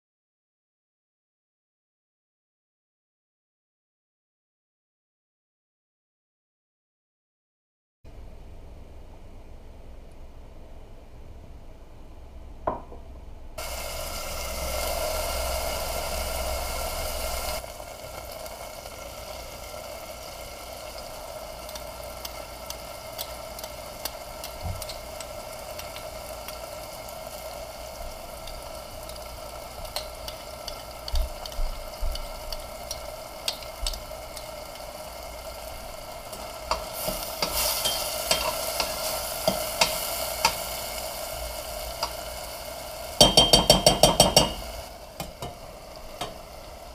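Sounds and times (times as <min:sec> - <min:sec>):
vegetables sizzling in oil: 0:13.6 - 0:46.9.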